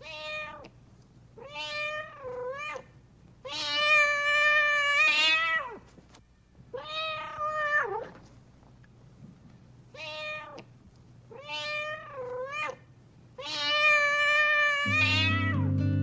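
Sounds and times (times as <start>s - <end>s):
cat meowing: 0.0s - 0.7s, 1.4s - 5.8s, 6.8s - 8.2s, 10.0s - 10.7s, 11.3s - 12.8s, 13.4s - 15.7s.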